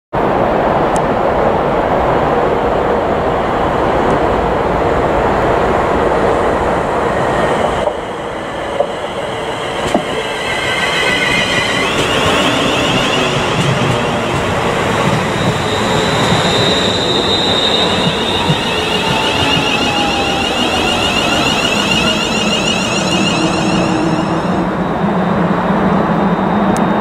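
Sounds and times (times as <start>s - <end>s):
train rushing noise: 0.2s - 27.0s
high wavering whining tones: 8.1s - 26.5s.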